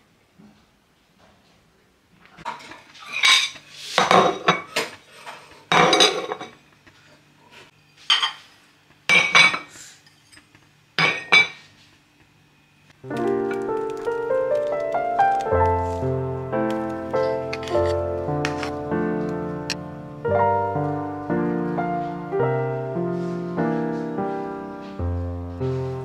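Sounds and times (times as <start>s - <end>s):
ceramic plates clinking: 5.7s - 6.6s, 11.0s - 11.6s.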